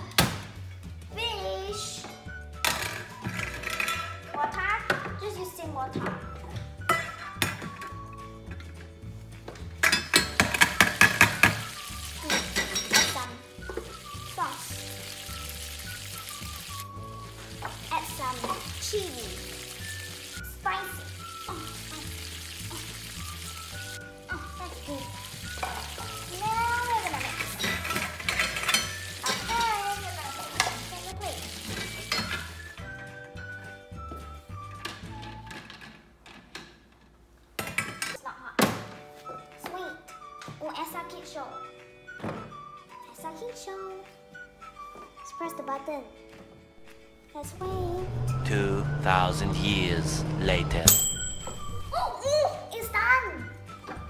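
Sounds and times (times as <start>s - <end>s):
background music: 0.0s - 36.0s, 38.2s - 54.0s
electronic sizzling toy stove: 10.2s - 12.9s, 13.6s - 32.9s
background music with bass line: 46.8s - 52.2s.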